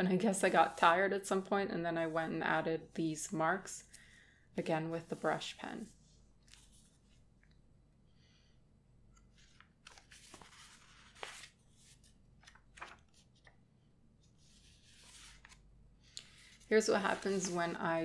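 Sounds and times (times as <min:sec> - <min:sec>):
paper pages rustling: 0:06.4 - 0:07.2, 0:09.2 - 0:13.6, 0:14.2 - 0:15.6, 0:16.2 - 0:17.9.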